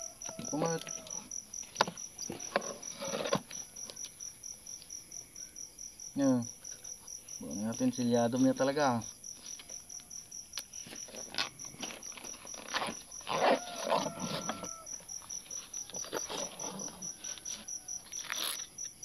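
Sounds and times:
distant animal call: 0.0s - 4.0s, 12.7s - 18.7s
crickets chirping: 0.0s - 19.0s
fabric pouch rustling: 10.8s - 14.7s.

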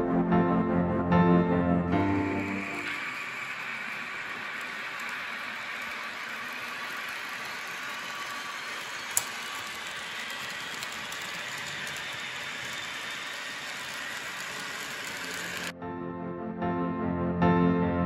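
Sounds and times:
model train running on track: 1.4s - 15.7s.

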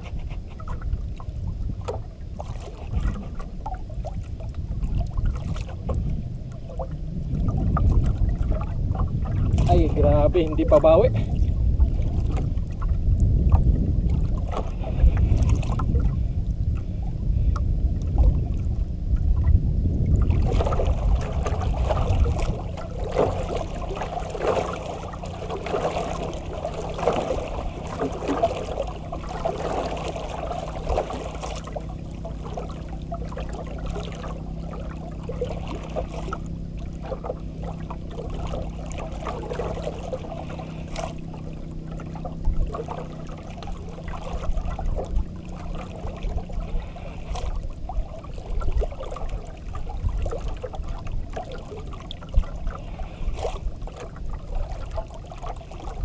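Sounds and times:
heavy low rumble: 0.0s - 56.0s
water sloshing against boat hull: 0.0s - 56.0s.

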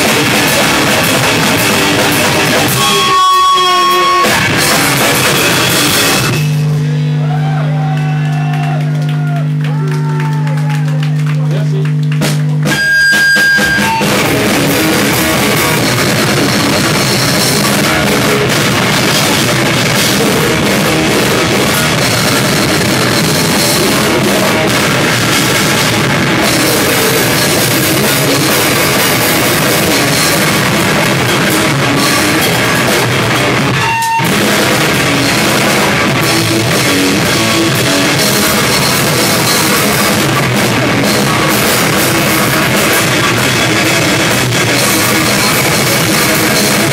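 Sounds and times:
cymbals crashing: 0.0s - 7.2s
heavy rock band playing: 0.0s - 8.8s, 11.5s - 46.9s
drum kit pounding: 0.0s - 46.9s
electric guitar: 0.0s - 46.9s.

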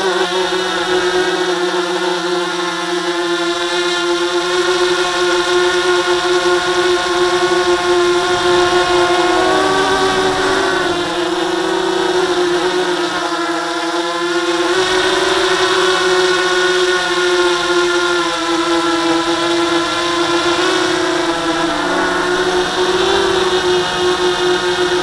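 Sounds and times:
drone propellers whining: 4.4s - 25.0s.

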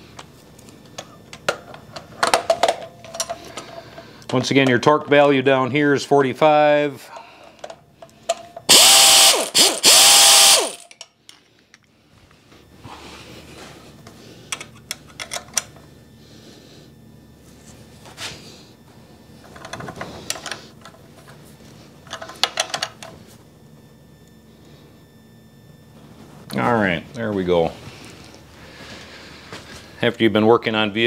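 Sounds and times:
power drill: 8.7s - 10.9s.

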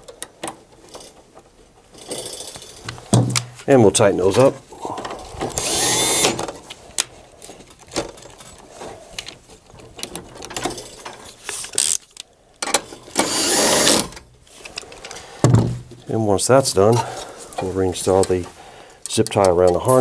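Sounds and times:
electric screwdriver whirring: 5.5s - 6.5s, 13.2s - 14.1s.

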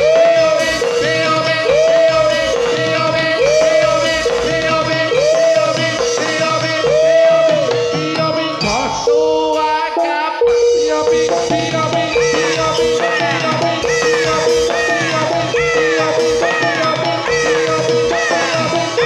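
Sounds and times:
percussion: 0.0s - 19.0s.

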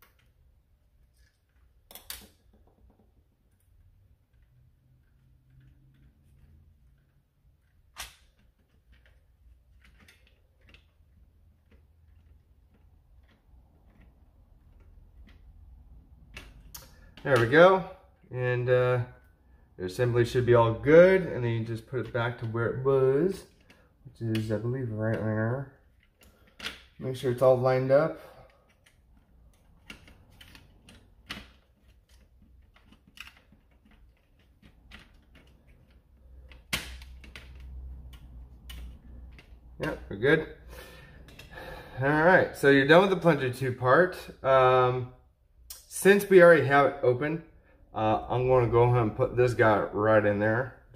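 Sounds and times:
plastic parts clicking and tapping: 0.0s - 17.5s, 23.5s - 27.0s, 28.4s - 40.1s.

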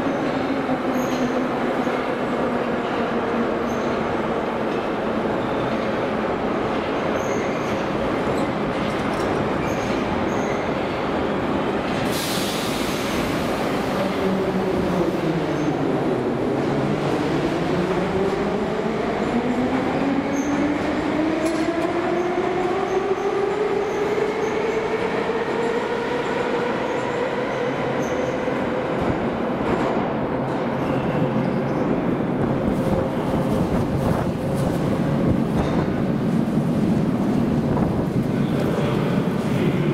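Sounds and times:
wheel and rail rumble: 28.9s - 39.9s.

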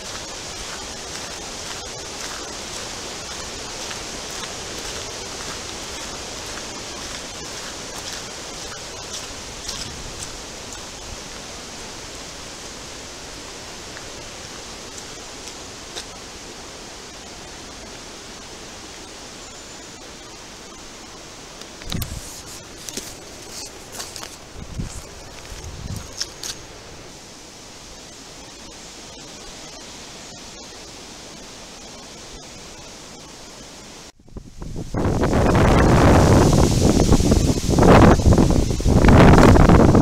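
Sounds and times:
storm wind in trees: 0.0s - 40.0s.

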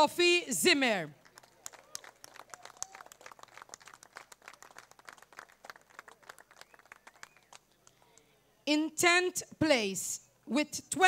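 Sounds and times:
sparse applause: 1.2s - 7.6s.

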